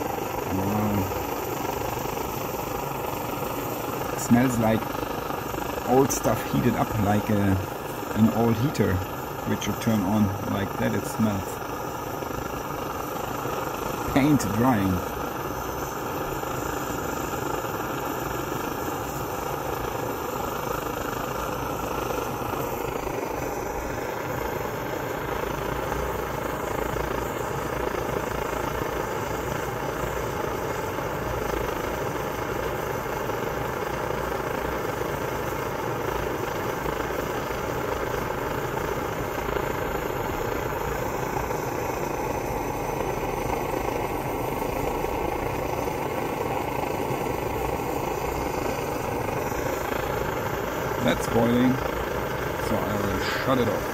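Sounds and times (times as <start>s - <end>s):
stove burner flame rushing: 0.0s - 53.9s
water boiling in pan: 0.0s - 53.9s.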